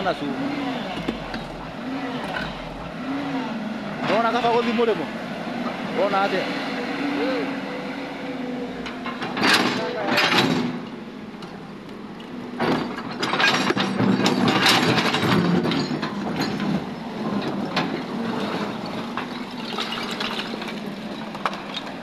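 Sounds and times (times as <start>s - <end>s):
excavator engine running: 0.0s - 22.0s
excavator bucket scraping rubble: 0.9s - 2.9s, 12.7s - 22.0s.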